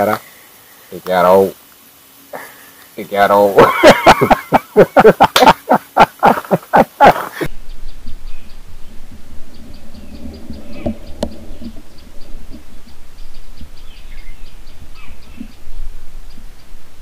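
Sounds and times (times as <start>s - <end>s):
laughter bursts: 3.6s - 7.5s
faint bird chirps: 7.4s - 17.0s.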